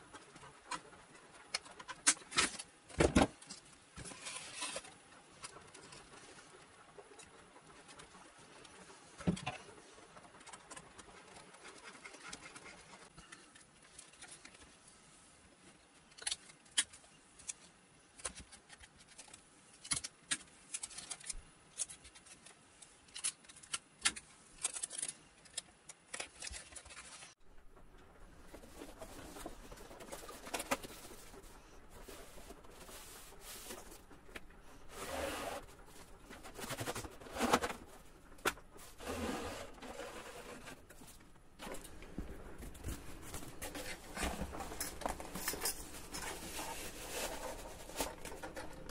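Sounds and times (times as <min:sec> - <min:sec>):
rustling of foam wing: 0:26.9 - 0:48.9.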